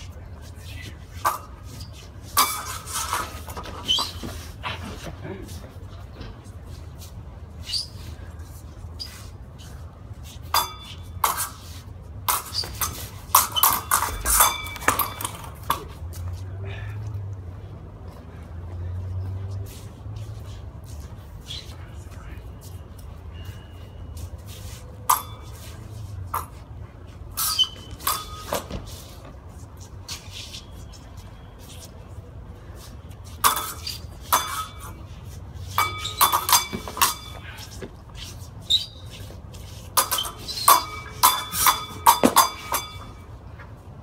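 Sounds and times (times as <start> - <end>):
steel swords clashing: 1.2 - 4.2, 10.5 - 11.6, 12.3 - 15.9, 25.1 - 25.8, 27.3 - 28.8, 33.4 - 37.8, 39.9 - 43.3.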